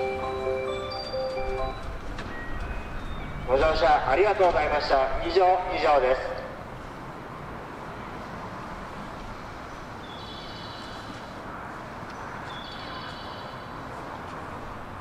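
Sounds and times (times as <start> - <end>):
high-pitched tones: 0.0 - 4.1
platform hum and bustle: 0.0 - 15.0.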